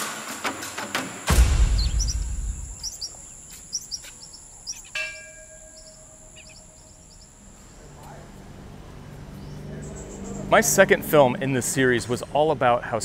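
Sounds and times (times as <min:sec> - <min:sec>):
birds chirping: 0:01.3 - 0:12.2
small temple bell ringing: 0:04.9 - 0:07.7.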